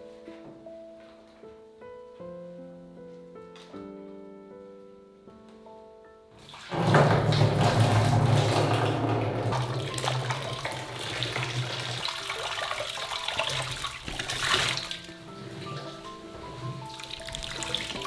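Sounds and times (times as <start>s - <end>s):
soft piano music: 0.0s - 18.0s
water pouring into a container: 6.5s - 15.1s, 17.0s - 18.0s.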